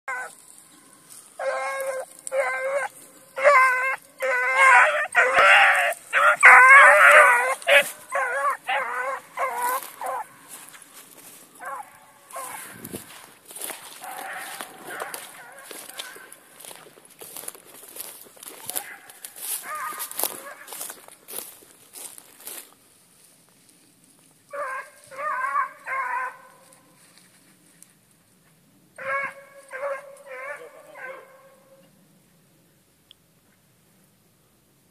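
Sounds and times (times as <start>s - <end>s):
hounds baying: 1.1s - 21.5s, 24.5s - 26.9s, 29.0s - 31.9s.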